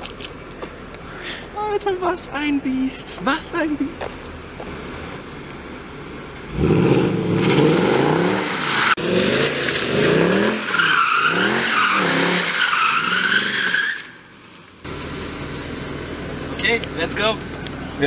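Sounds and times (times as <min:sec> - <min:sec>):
car engine revving hard: 0:06.5 - 0:13.6.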